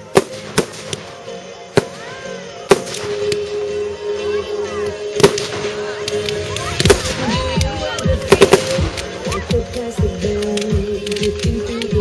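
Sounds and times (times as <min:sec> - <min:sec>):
firework shells bursting: 0:00.0 - 0:02.0, 0:02.7 - 0:03.6, 0:05.1 - 0:11.6
music playing: 0:00.0 - 0:12.0.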